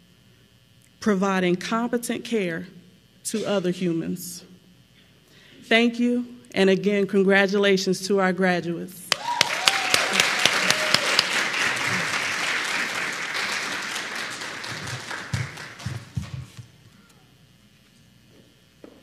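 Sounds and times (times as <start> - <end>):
audience applauding: 9.1 - 16.6.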